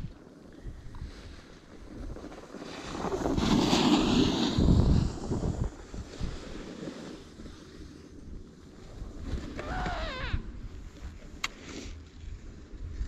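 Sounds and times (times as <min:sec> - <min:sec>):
snowboard scraping over snow: 0:00.2 - 0:13.0.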